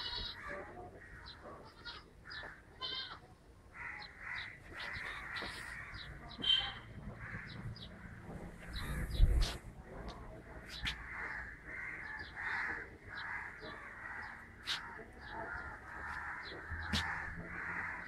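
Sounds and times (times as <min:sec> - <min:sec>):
harsh animal calls: 0:10.9 - 0:18.0.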